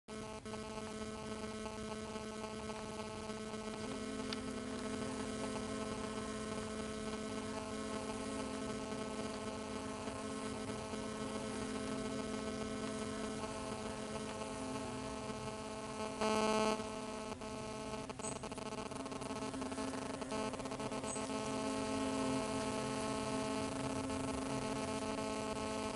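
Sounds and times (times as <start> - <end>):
hornets buzzing in nest: 0.1 - 25.9.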